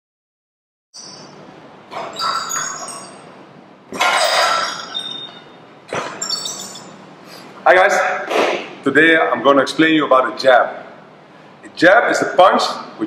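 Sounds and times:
metallic jingle: 2.1s - 3.3s, 6.2s - 7.0s.

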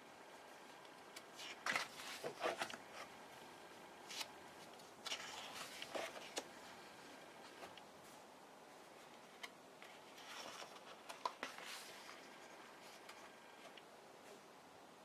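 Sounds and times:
book pages turning: 1.1s - 3.1s, 4.0s - 6.6s, 9.1s - 13.8s.

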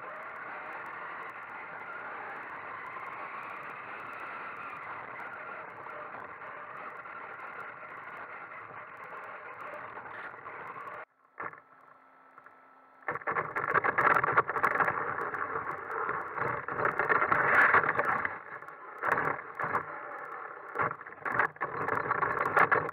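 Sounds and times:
rc car motor running: 0.0s - 11.7s.

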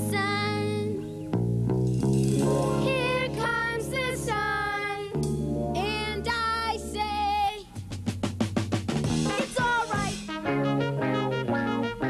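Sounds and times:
instrumental band music: 1.2s - 4.1s, 5.2s - 12.0s
fast drum fill: 7.8s - 10.4s.

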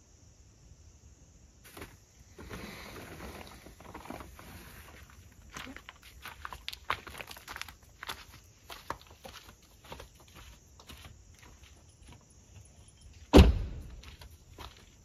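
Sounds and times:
footsteps on leaf litter: 4.4s - 11.6s.

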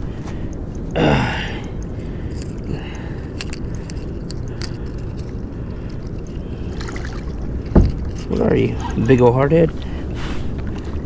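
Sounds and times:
steady low rumble: 0.0s - 11.0s
fishing reel ticking and rattling: 1.6s - 9.7s.

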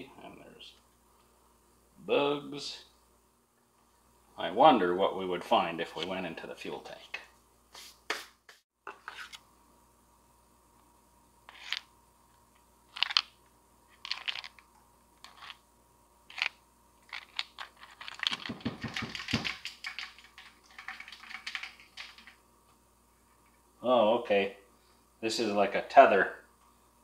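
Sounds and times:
plastic parts rattling: 12.9s - 13.3s, 14.0s - 14.6s, 16.3s - 22.4s
plastic parts clicking: 17.1s - 22.3s.

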